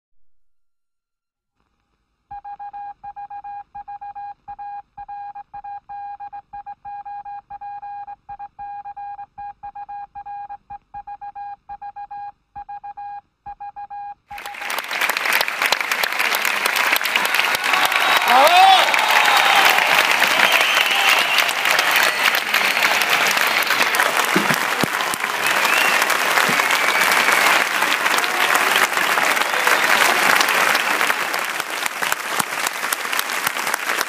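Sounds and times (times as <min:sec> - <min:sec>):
electronic beeps like morse code: 0:02.3 - 0:14.5
audience applause: 0:14.3 - 0:34.0.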